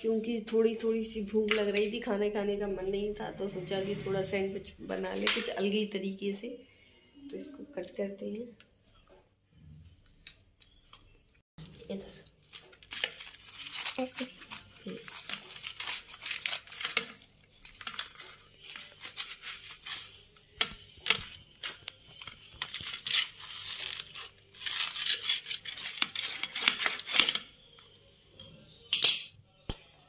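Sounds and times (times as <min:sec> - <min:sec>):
pizza cutter crunching bread: 0:12.6 - 0:17.4, 0:18.0 - 0:27.7.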